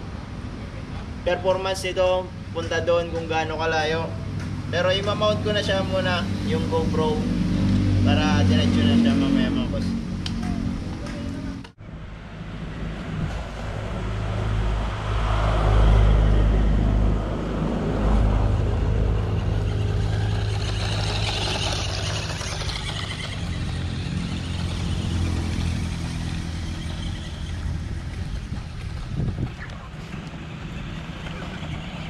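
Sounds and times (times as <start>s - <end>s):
wind rumble on microphone: 7.9s - 22.1s, 22.9s - 32.0s
rc truck motor whining: 19.2s - 32.0s
tyres on gravel: 19.2s - 32.0s.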